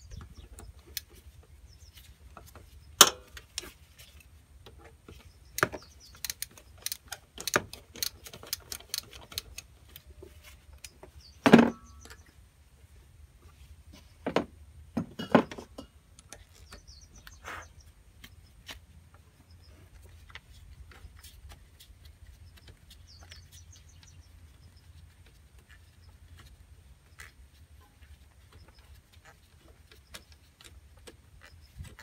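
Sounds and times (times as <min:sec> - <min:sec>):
bird chirping: 0:00.0 - 0:04.2, 0:05.1 - 0:07.1, 0:08.7 - 0:12.4, 0:16.2 - 0:32.0
light clicks and ticks: 0:03.1 - 0:10.1.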